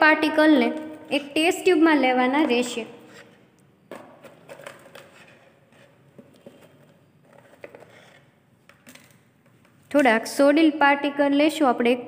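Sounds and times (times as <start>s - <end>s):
plastic jar clicks and scrapes: 2.4s - 10.2s.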